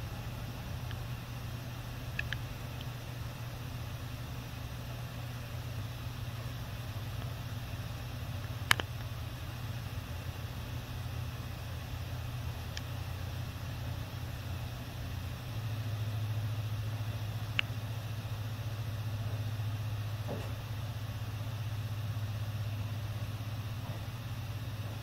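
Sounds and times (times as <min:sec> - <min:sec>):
low room hum: 0:00.0 - 0:25.0
faint dull knock: 0:20.2 - 0:20.6.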